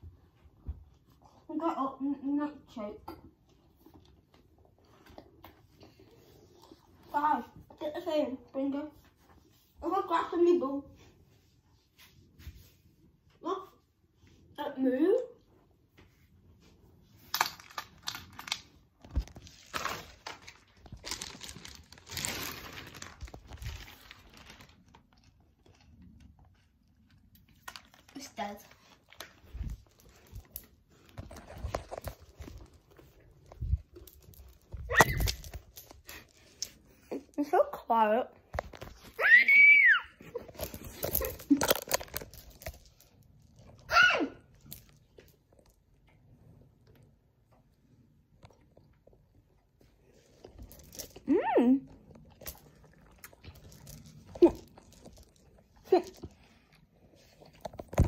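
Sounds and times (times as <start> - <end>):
plastic wrappers crinkling: 17.2 - 37.4, 40.2 - 43.9, 50.2 - 58.0.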